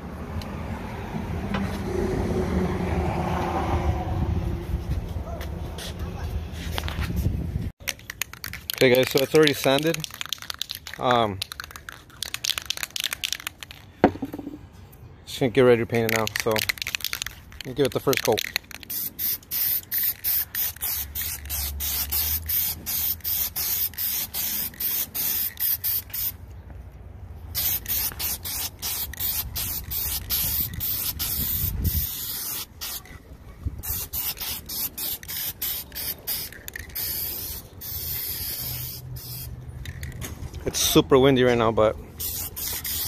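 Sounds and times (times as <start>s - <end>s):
wind rumble on microphone: 2.2s - 7.7s, 30.7s - 32.2s
spray-paint can hissing: 8.1s - 14.5s, 16.1s - 26.4s, 27.5s - 33.1s, 33.8s - 40.2s, 42.2s - 43.0s.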